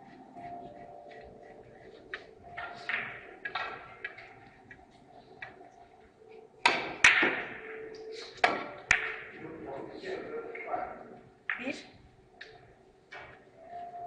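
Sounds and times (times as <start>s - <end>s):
billiard balls clacking: 2.1s - 5.6s, 6.6s - 9.4s.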